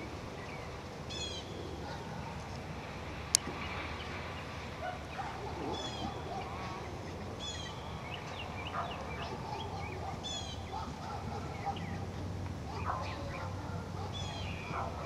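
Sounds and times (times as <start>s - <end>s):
bird high-pitched calls: 0.0s - 2.0s, 5.1s - 12.1s, 12.7s - 15.0s
outdoor background noise: 0.0s - 15.0s
bird chirps: 5.2s - 12.0s, 14.1s - 14.9s.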